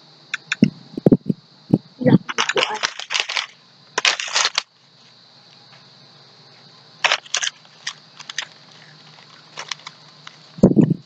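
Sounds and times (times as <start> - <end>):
foil snack bag crinkling: 2.3 - 4.7, 7.0 - 10.6.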